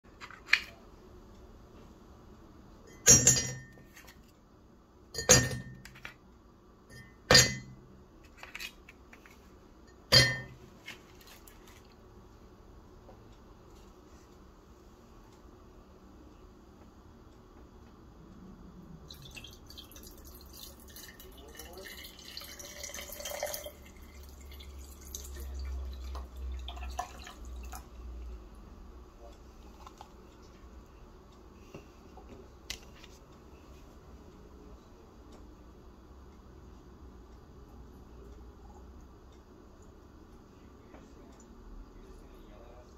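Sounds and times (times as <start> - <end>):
coffee pouring over ice: 19.1 - 27.8.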